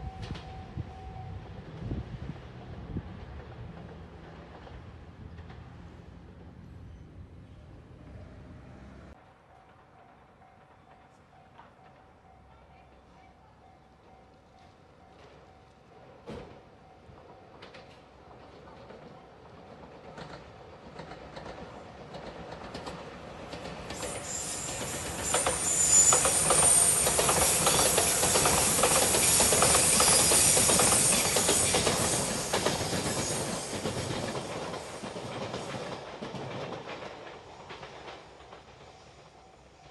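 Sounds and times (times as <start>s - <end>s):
train passing rumble: 0.0s - 39.9s
wheels clacking over rail joints: 17.3s - 39.4s.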